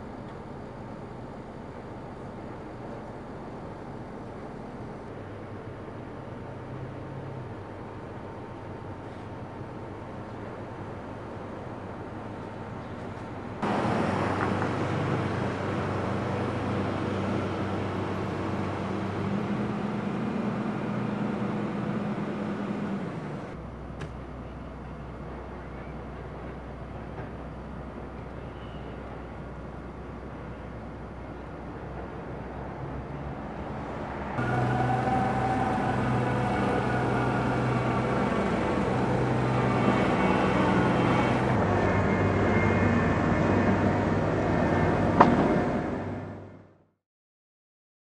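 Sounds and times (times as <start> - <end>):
diesel machinery engine hum: 0.0 - 46.8
excavator diesel engine running: 13.6 - 23.6, 34.4 - 46.4.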